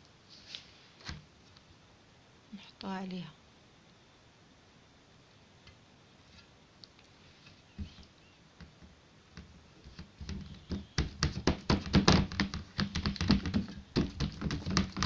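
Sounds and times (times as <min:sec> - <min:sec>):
hands slapping dough in metal tray: 0:09.4 - 0:15.0.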